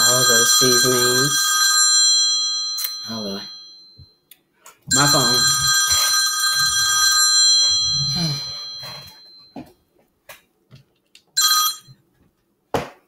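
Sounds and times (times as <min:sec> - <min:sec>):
phone ringtone: 0:00.0 - 0:04.1, 0:04.9 - 0:09.6, 0:11.4 - 0:12.0.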